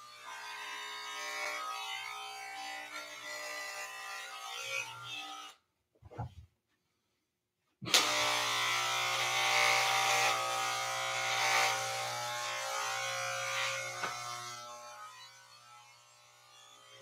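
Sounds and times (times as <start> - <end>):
electric hair clippers buzzing: 0.0 - 5.6, 7.9 - 17.0.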